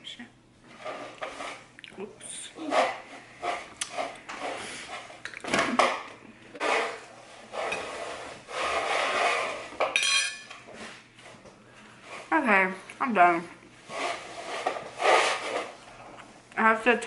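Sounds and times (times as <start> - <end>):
fork clinking on ceramic plate: 9.9 - 10.5.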